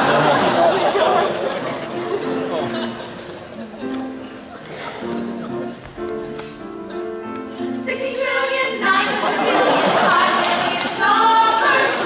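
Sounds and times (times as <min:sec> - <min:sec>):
women singing in harmony: 0:07.7 - 0:12.0.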